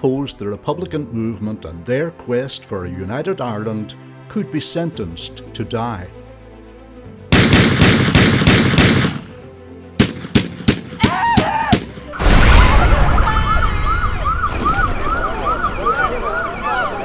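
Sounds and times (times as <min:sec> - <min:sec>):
automatic gunfire: 0:07.3 - 0:09.3, 0:10.0 - 0:10.9
single gunshots: 0:07.3 - 0:09.3, 0:10.0 - 0:11.1
loud explosion: 0:12.2 - 0:15.3
emergency siren wailing: 0:12.7 - 0:17.0.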